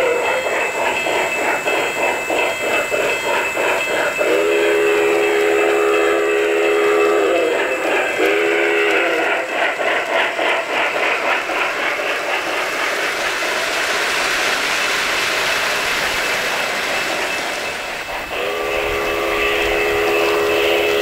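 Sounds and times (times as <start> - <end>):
model train wheels rushing: 0.0 - 21.0
steam locomotive whistle chord: 4.2 - 9.4, 18.3 - 21.0.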